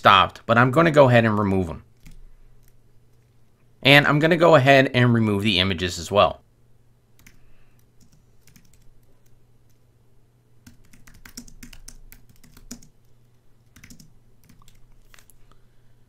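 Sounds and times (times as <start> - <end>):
computer keyboard keystroke clicks: 13.8 - 15.3.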